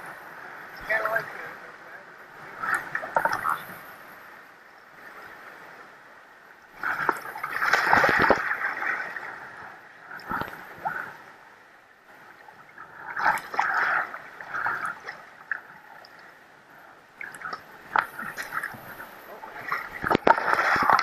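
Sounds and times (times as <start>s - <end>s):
river water splashing against hull: 2.2s - 3.8s, 6.7s - 11.4s, 12.1s - 21.0s.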